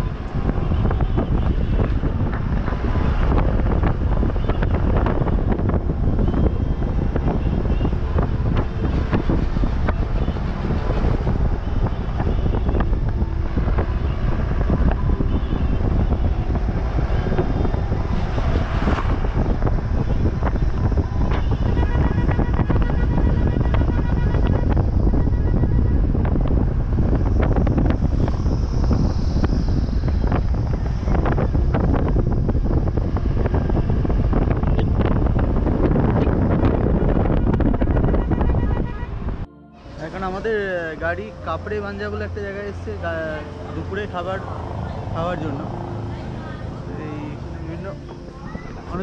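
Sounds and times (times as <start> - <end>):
vehicle engine and road rumble: 0.0 - 49.0
wind buffeting microphone: 0.0 - 49.0.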